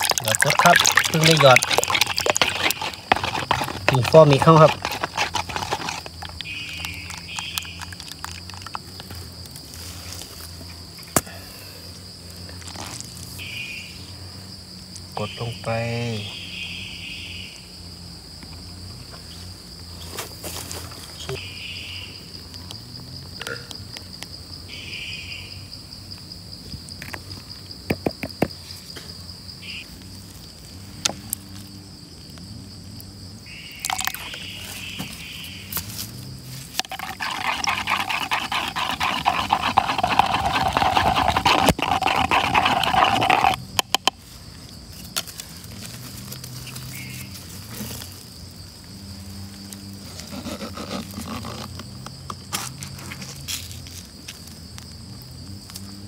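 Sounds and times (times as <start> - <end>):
harsh rapid scraping: 0.0 - 8.8, 36.0 - 44.0
taps and scrapes against a cup: 0.0 - 8.8, 36.8 - 44.2
wooden stick stirring in a cup: 0.0 - 8.9, 33.8 - 34.3, 36.8 - 44.1
high insect drone: 0.0 - 56.0.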